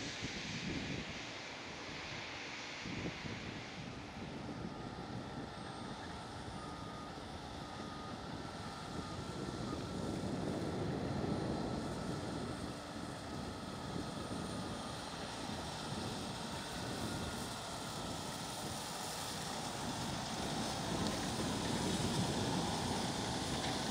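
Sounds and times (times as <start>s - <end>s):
combine harvester droning: 0.1s - 23.9s.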